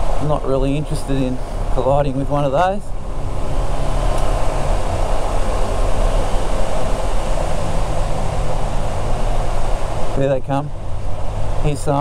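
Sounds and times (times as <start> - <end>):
motorcycle engine running: 0.0 - 12.0
wind rush: 0.0 - 12.0.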